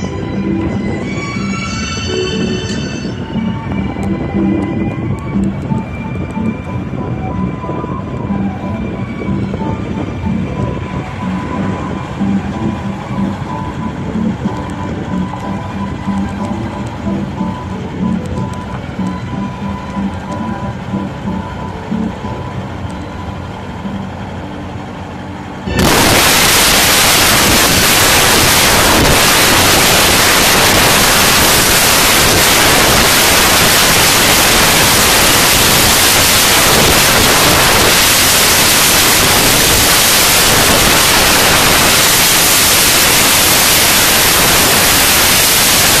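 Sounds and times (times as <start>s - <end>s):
loud even static hiss: 0.0s - 46.0s
steady tones: 0.0s - 46.0s.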